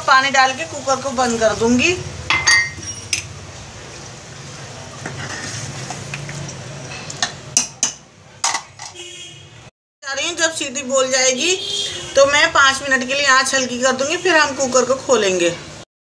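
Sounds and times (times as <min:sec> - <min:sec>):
ladle clinking against pot: 0:02.3 - 0:03.3
ladle stirring curry: 0:02.8 - 0:08.0.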